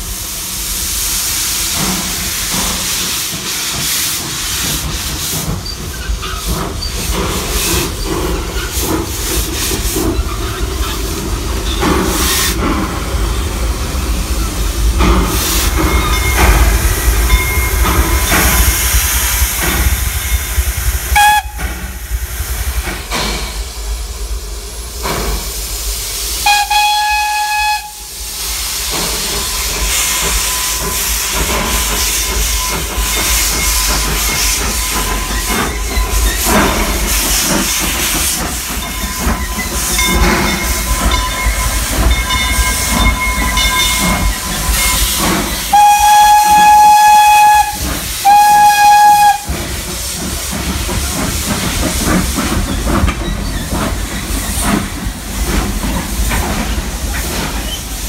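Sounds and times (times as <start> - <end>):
hiss of steam: 0.0 - 58.0
train rolling past: 0.0 - 58.0
steam whistle blasts: 21.1 - 21.6, 26.4 - 28.2, 44.8 - 49.6.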